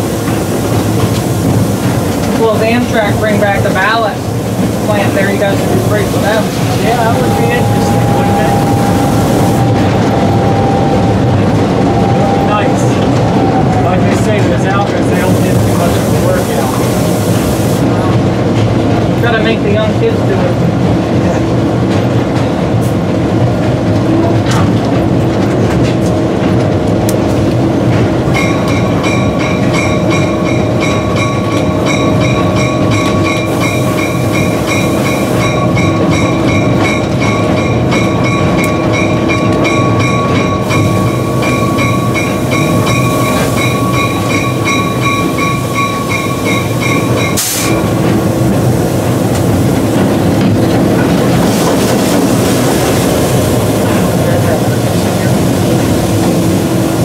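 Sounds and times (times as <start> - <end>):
wheels rumbling on rails: 0.0 - 57.0
locomotive bell ringing: 4.9 - 15.4, 28.3 - 48.4.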